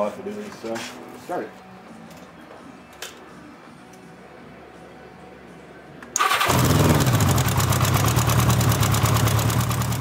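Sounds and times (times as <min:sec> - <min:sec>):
motorcycle engine running: 0:06.4 - 0:10.0.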